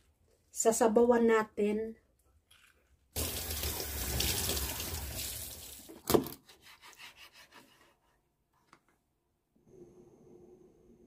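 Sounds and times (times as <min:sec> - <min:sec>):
tap water running into sink: 0:03.2 - 0:06.0
knife cutting on wooden board: 0:06.2 - 0:08.0.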